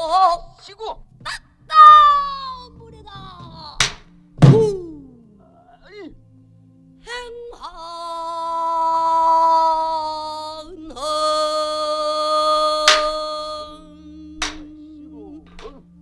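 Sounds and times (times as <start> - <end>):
barrel drum strokes: 3.2 - 5.2
woman singing long notes: 7.0 - 16.0.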